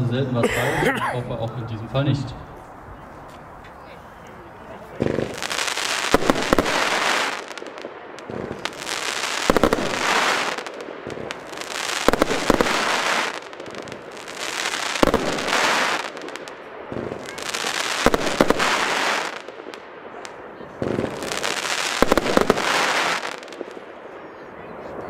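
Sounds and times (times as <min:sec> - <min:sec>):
firework launch bangs: 0:05.0 - 0:07.6
firework crackling hiss: 0:05.0 - 0:23.9.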